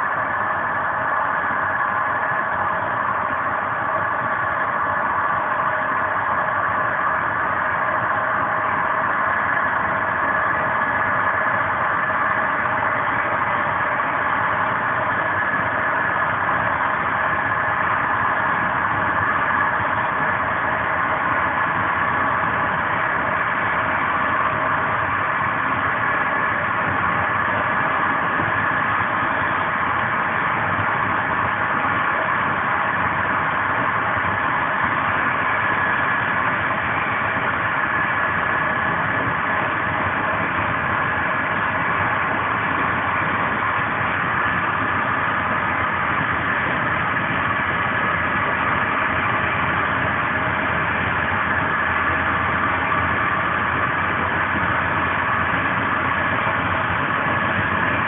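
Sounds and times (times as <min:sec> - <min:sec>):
faint steady tones: 0:00.0 - 0:58.0
train coach rolling and wind noise: 0:00.0 - 0:58.0.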